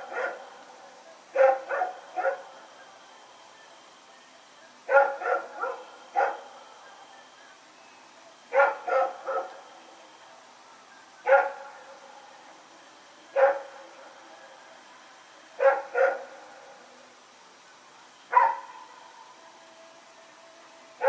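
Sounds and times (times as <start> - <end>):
dog barking: 0.0 - 0.5, 1.4 - 2.5, 4.9 - 6.5, 8.5 - 9.6, 11.2 - 11.8, 13.4 - 13.8, 15.6 - 16.3, 18.3 - 18.8.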